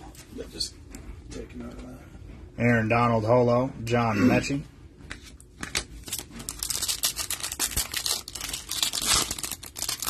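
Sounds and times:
foil wrapper crinkling and tearing: 5.6 - 10.0.

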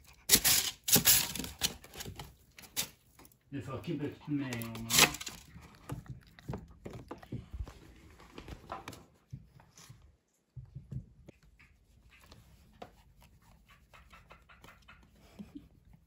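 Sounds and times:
dog sniffing: 11.4 - 16.0.

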